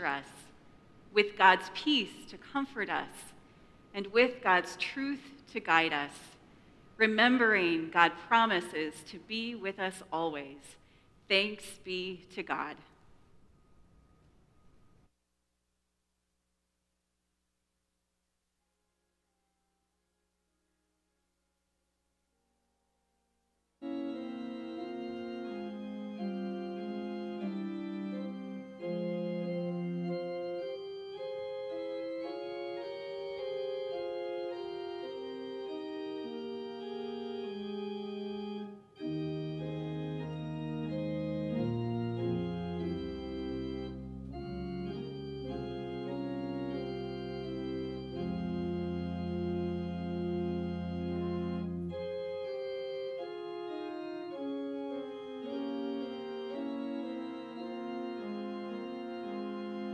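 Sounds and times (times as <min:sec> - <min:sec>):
deep organ bass notes: 0:23.8 - 0:59.9
organ playing held chords: 0:23.8 - 0:59.9.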